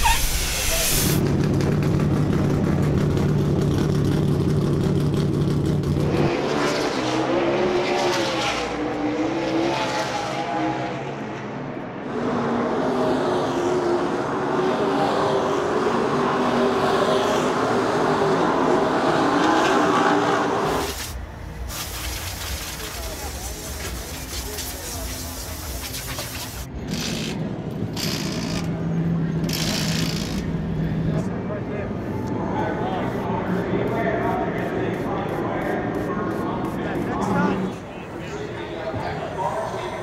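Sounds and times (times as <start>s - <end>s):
race car engines droning: 0.0s - 21.7s, 22.8s - 40.0s
race cars passing at speed: 1.2s - 21.4s, 28.6s - 40.0s.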